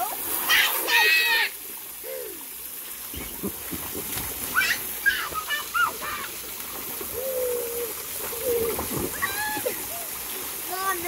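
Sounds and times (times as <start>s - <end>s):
hose spraying water: 0.0s - 11.0s
water splashing in a pool: 0.0s - 11.0s
children squealing: 9.1s - 10.1s.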